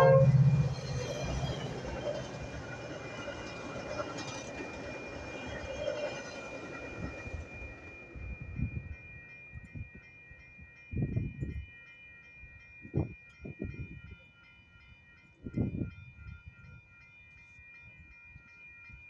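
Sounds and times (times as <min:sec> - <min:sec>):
railroad crossing bell ringing: 0:00.0 - 0:19.0.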